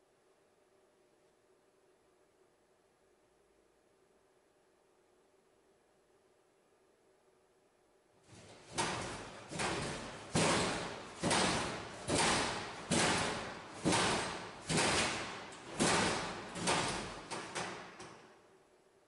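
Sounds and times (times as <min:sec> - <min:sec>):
rattling echo in corridor: 0:08.2 - 0:18.7
locker door banging: 0:08.3 - 0:18.3.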